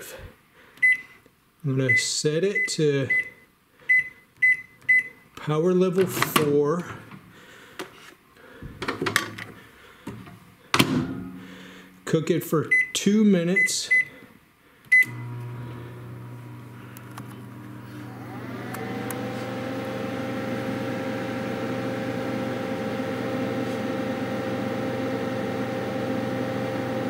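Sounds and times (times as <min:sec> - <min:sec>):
microwave beep: 0:00.8 - 0:01.1, 0:01.9 - 0:05.2, 0:14.9 - 0:15.4
microwave whine and hum: 0:14.9 - 0:27.0.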